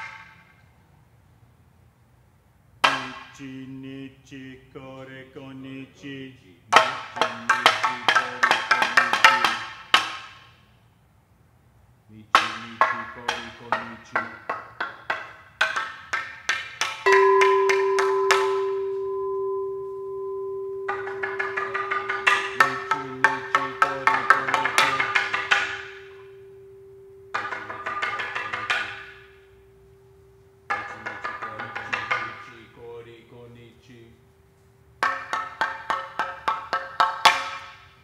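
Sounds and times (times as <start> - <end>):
ceramic percussion clacking notes: 2.8 - 3.4, 6.8 - 10.2, 12.4 - 32.8, 35.0 - 37.9
long ringing tone: 17.1 - 30.9.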